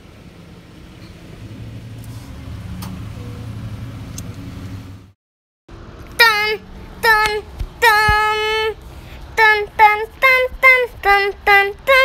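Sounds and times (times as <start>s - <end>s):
car engine and road hum: 0.0s - 12.0s.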